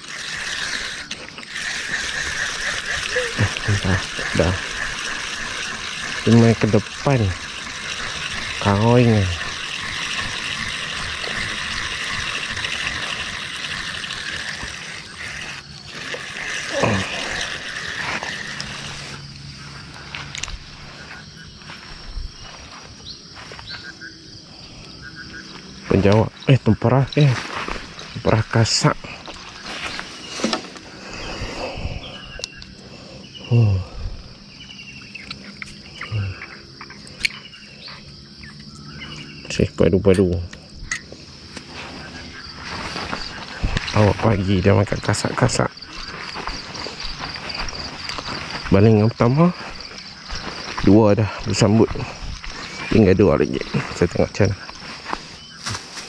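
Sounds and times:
river water flowing: 0.0s - 19.9s
crickets chirping: 0.0s - 56.0s
insect chorus: 0.0s - 56.0s.

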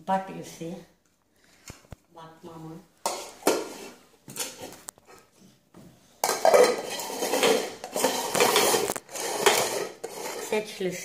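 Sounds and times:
pet bowls scraping on tile floor: 3.0s - 11.0s.

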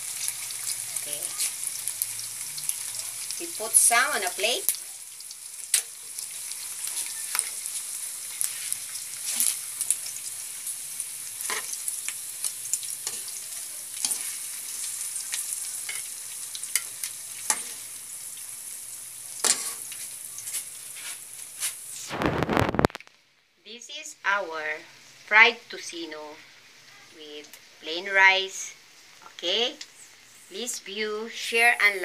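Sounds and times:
meat sizzling in oil: 0.0s - 23.0s
metal tongs scraping a pan: 6.6s - 10.0s, 11.4s - 17.9s, 19.4s - 21.2s.

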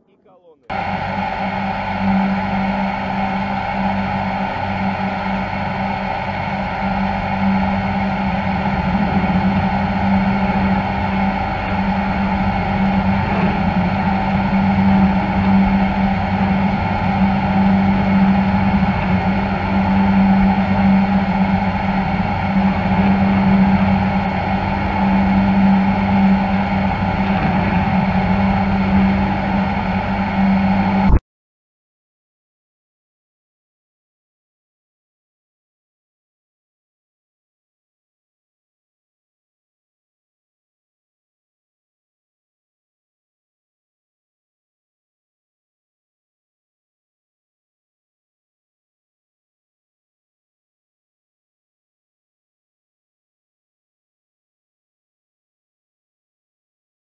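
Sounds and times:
ship engines droning: 0.0s - 31.2s.

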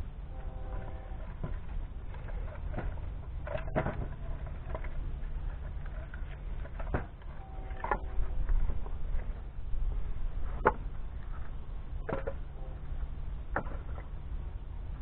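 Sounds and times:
steady low rumble: 0.0s - 15.0s
firewood pieces knocking together: 1.3s - 9.4s, 13.5s - 14.1s.

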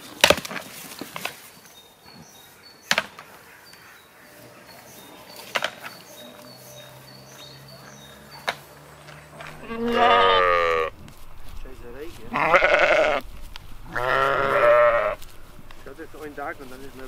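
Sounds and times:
goats butting horns: 4.8s - 17.0s.

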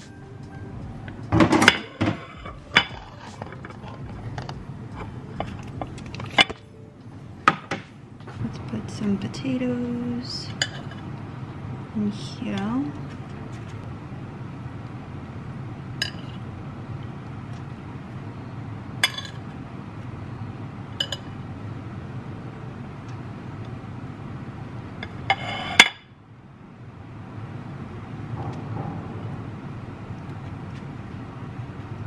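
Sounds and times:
low hum: 0.0s - 25.4s, 26.2s - 32.0s
metal spoon clinking on plates: 10.6s - 11.0s, 16.0s - 16.4s, 19.0s - 19.4s, 21.0s - 21.4s.

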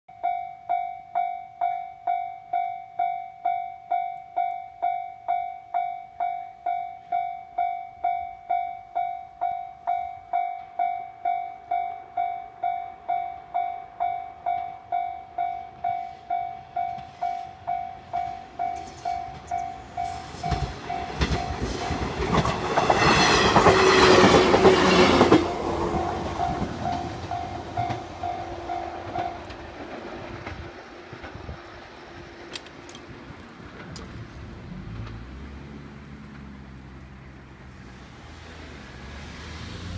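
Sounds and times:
level-crossing warning bell: 0.1s - 29.7s
train wheels clattering: 15.8s - 34.2s.

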